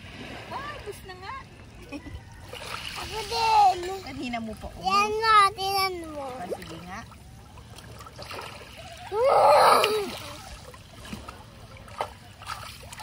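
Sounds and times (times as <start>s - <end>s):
water splashing: 0.0s - 13.0s
child crying out: 9.1s - 10.4s.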